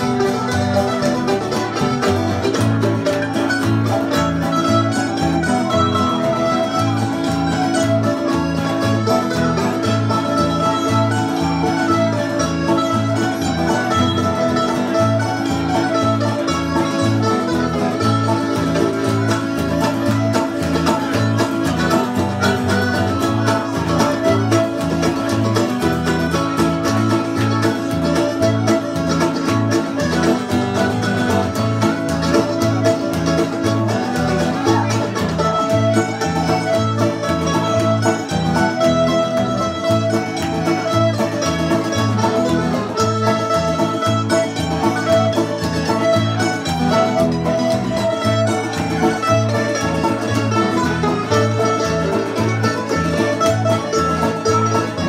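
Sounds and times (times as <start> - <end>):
accordion: 0.0 - 55.0
strummed acoustic guitar: 0.0 - 55.0
strummed string instrument: 0.0 - 55.0.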